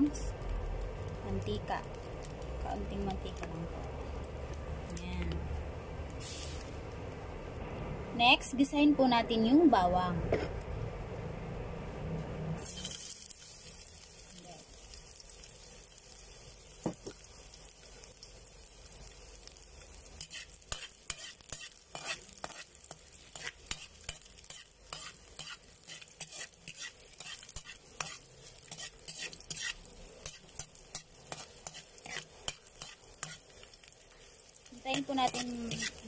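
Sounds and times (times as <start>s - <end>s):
garlic sizzling in oil: 0.0s - 7.5s, 12.6s - 36.0s
spoon scraping a metal wok: 20.2s - 33.6s, 34.8s - 36.0s.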